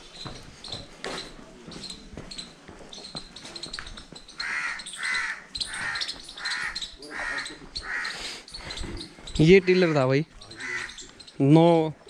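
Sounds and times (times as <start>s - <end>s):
crow cawing: 4.4s - 8.3s, 9.4s - 11.1s.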